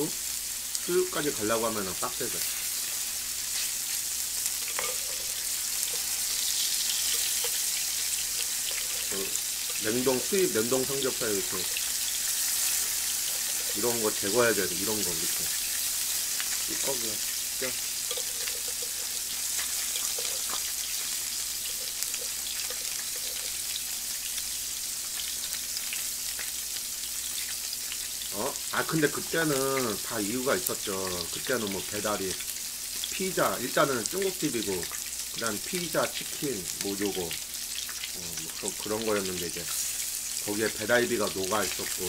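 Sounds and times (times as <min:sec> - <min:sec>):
meat sizzling on grill pan: 0:00.0 - 0:42.0
fat crackling and popping: 0:02.2 - 0:28.6.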